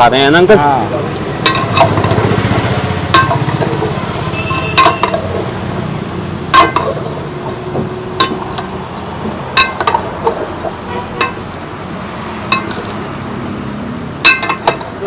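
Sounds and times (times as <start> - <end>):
metal ladle clinking against pot: 1.4 - 2.2, 3.1 - 5.5, 6.5 - 7.2, 8.2 - 8.7, 9.6 - 11.5, 12.5 - 13.0, 14.2 - 15.0.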